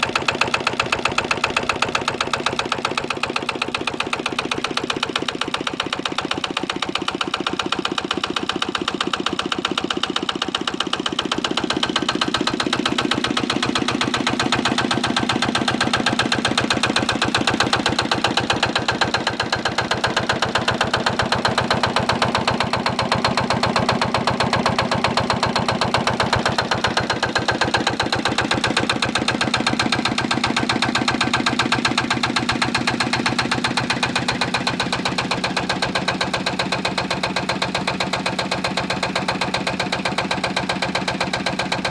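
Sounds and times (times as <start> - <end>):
diesel engine running steadily: 0.0 - 41.9.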